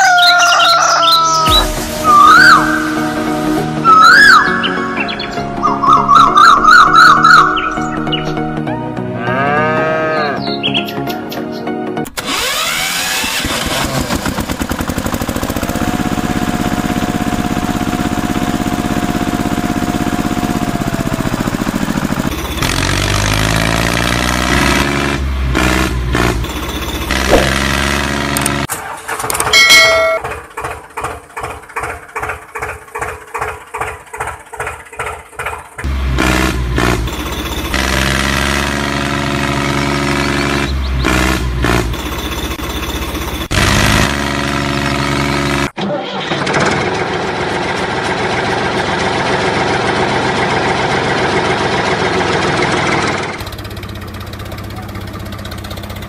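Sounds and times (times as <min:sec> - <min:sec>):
diesel tractor engine chugging: 0:12.2 - 0:24.3, 0:25.2 - 0:56.0.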